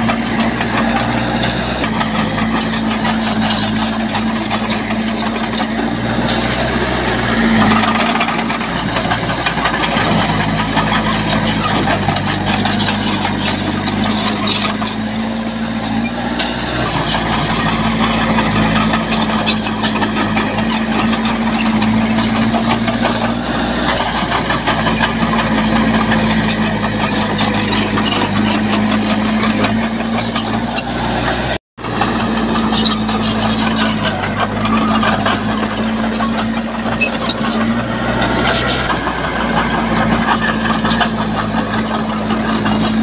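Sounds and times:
heavy diesel engine running: 0.0 - 43.0.

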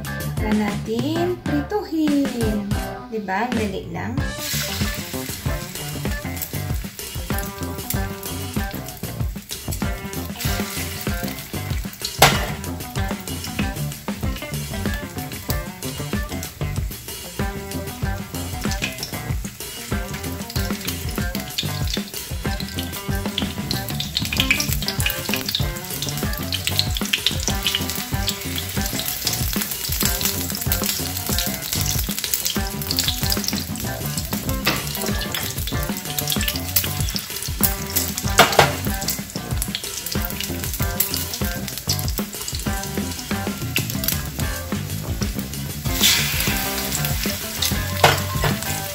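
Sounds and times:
food frying in hot oil: 4.2 - 48.9.

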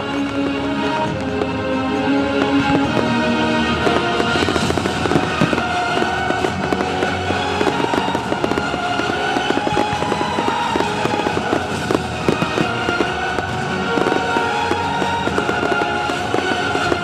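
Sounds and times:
fireworks crackles and bangs: 0.0 - 17.0
music playing: 0.0 - 17.0.

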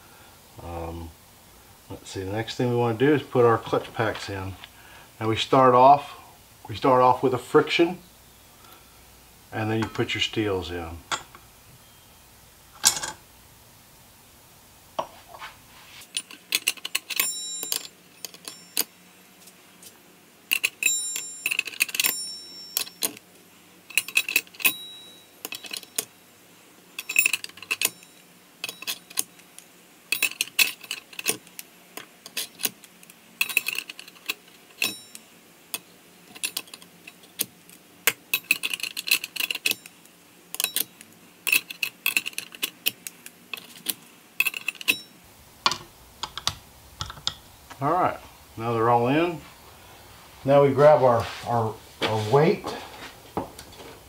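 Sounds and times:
metal clutch plates clinking: 20.5 - 23.2, 23.9 - 26.1, 27.0 - 29.3, 30.1 - 31.4, 33.4 - 35.2, 38.3 - 39.9, 43.5 - 47.3.

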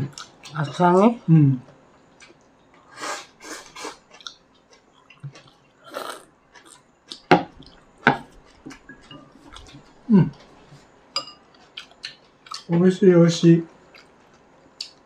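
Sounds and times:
slurping and chewing: 2.2 - 10.9.

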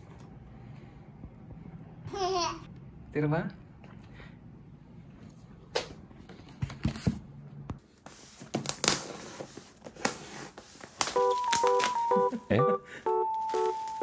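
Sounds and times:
bubble wrap rustling and crinkling: 8.1 - 12.0, 13.3 - 14.0
electronic keyboard melody: 11.2 - 14.0.

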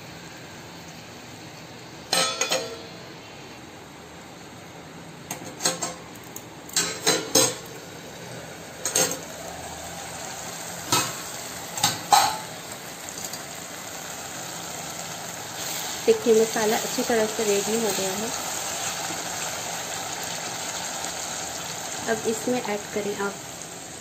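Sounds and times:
metal lid and spoon clinking on pan: 2.1 - 2.9
food sizzling in a pan: 6.8 - 24.0.

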